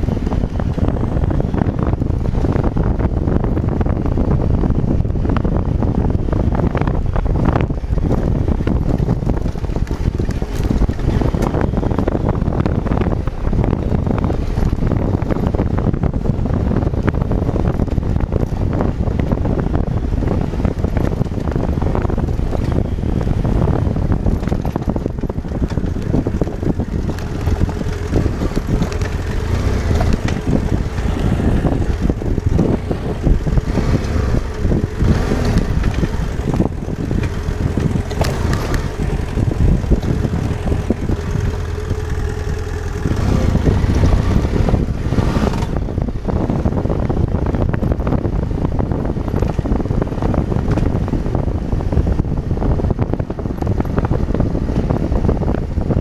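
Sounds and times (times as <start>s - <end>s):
motorcycle engine running: 0.0s - 56.0s
wind noise on microphone: 0.0s - 56.0s.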